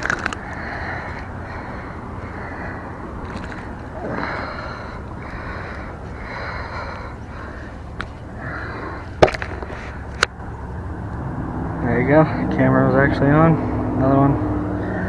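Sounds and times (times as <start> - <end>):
heavy breathing: 0.0 - 10.3, 14.7 - 15.0.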